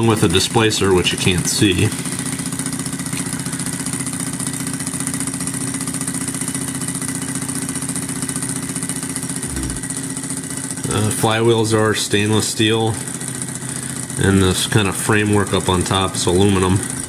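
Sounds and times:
stirling engine running: 0.0s - 17.0s.

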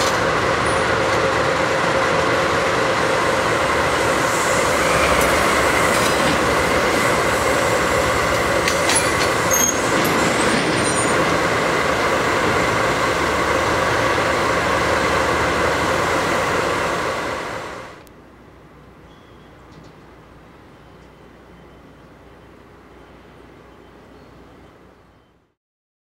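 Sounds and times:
diesel locomotives running past: 0.0s - 25.5s
high wheel squeal: 4.0s - 11.7s.

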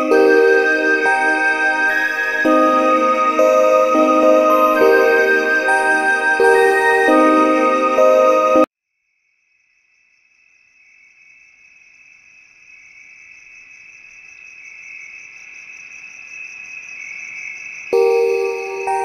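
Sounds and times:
music with mallet percussion: 0.0s - 8.7s, 18.0s - 19.0s.

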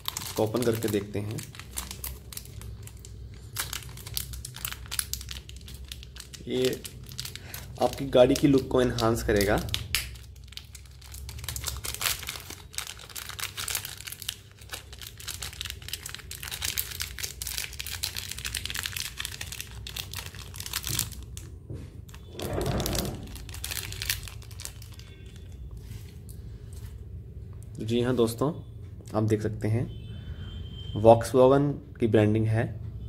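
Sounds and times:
plastic packaging crinkling: 0.0s - 26.4s.

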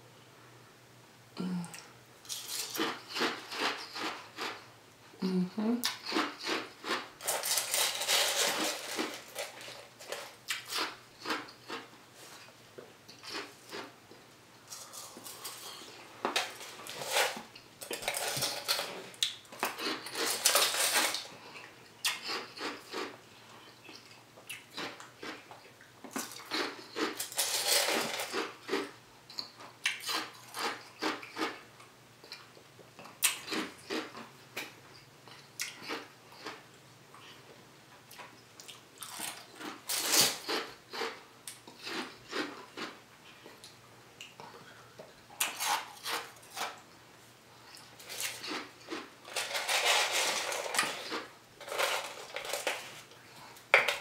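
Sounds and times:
spoon scraping frozen dessert: 5.9s - 11.9s, 19.6s - 21.3s, 48.0s - 53.1s.

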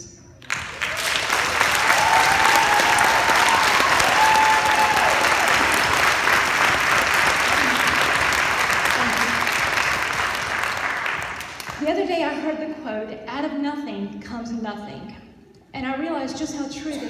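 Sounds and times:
audience applauding: 0.4s - 11.8s.

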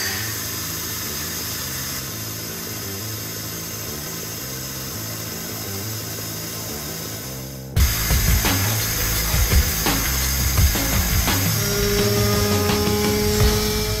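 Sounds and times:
lathe cutting steel hiss: 0.0s - 14.0s
background music with low notes: 2.1s - 14.0s
loud low hit: 7.8s - 14.0s.

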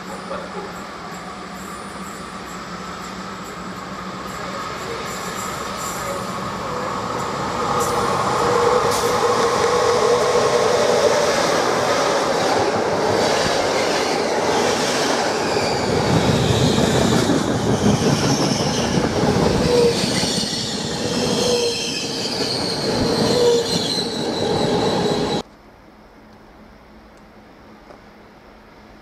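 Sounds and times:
train wheels rumbling on rail: 0.0s - 25.5s
high-pitched wheel squeal: 15.3s - 25.4s.

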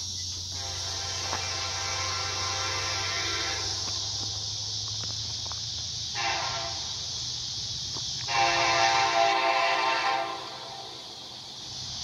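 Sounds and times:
steady high hiss: 0.0s - 12.0s
distant locomotive air horn: 0.5s - 4.1s, 6.1s - 7.1s, 8.3s - 11.1s.

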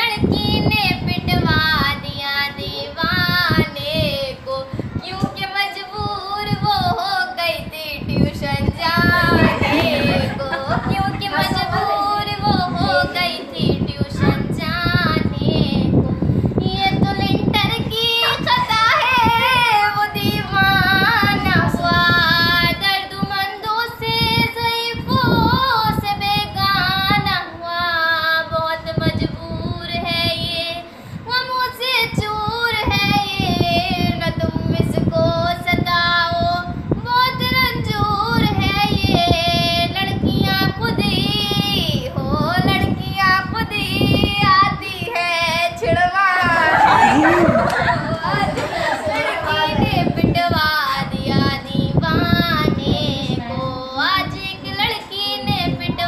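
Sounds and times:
woman singing unaccompanied: 0.0s - 56.0s
singer breathing: 16.2s - 16.6s, 30.8s - 31.3s.

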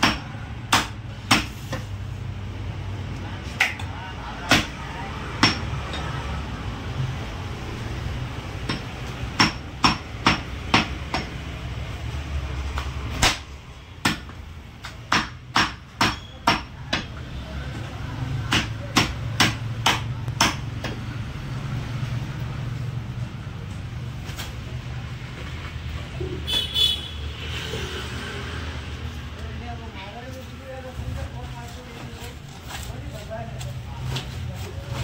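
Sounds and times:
cleaver chopping meat on wood: 0.0s - 1.8s, 3.6s - 5.8s, 8.6s - 11.4s, 13.2s - 17.2s, 18.3s - 21.1s.

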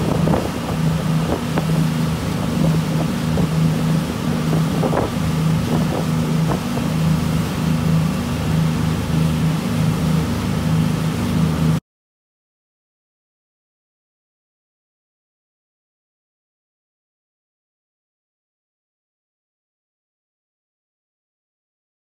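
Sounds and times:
wind on microphone: 0.0s - 7.5s
motorboat engine drone: 0.0s - 11.8s
wake rushing: 0.0s - 11.8s.

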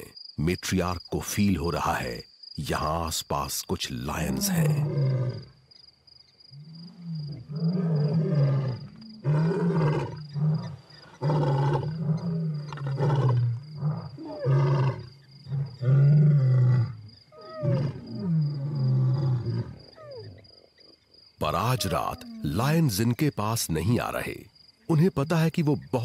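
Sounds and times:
lions roaring: 4.3s - 5.5s, 6.7s - 20.4s, 21.5s - 22.8s.

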